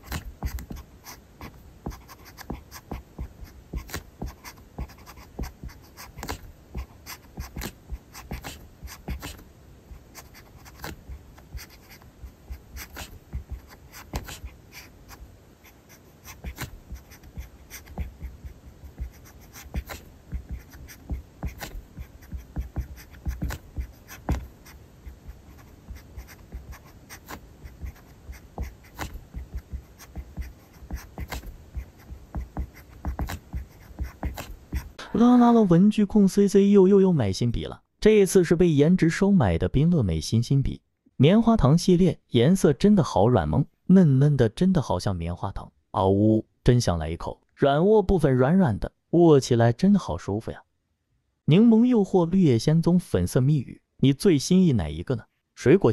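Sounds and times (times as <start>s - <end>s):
pen scratching on paper: 0.0s - 35.0s.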